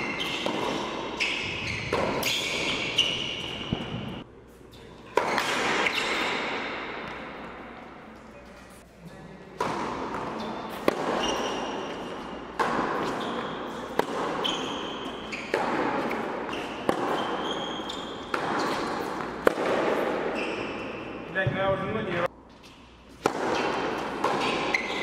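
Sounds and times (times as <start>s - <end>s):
racket striking tennis ball: 0.0s - 4.2s, 5.1s - 7.6s, 9.6s - 21.3s, 22.6s - 25.0s
shoe squeaks on court: 0.0s - 6.7s, 10.3s - 12.3s, 13.0s - 19.3s, 20.2s - 21.3s, 24.4s - 25.0s.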